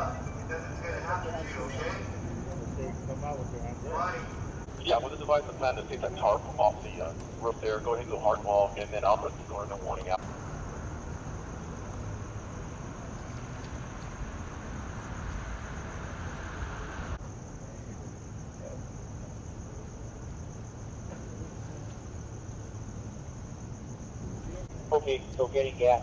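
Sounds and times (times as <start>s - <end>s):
high-pitched drone: 0.0s - 2.1s
idling vehicles rumble: 0.0s - 17.2s.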